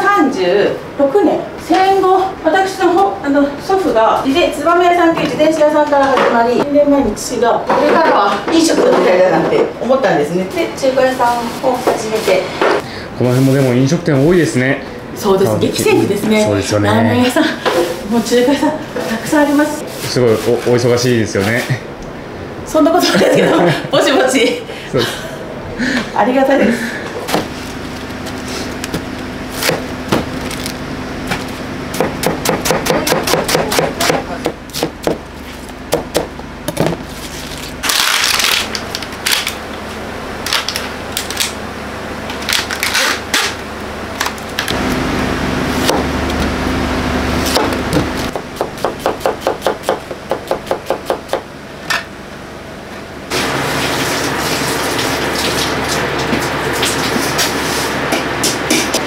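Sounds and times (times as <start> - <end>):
steady low hum: 0.0 - 59.0
knife chopping on cutting board: 31.3 - 35.2, 35.9 - 37.0, 47.5 - 51.5.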